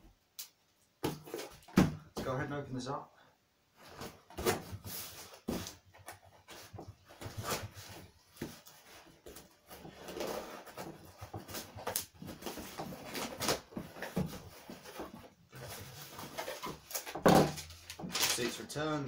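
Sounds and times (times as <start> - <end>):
tape and cardboard tearing: 8.4 - 18.6.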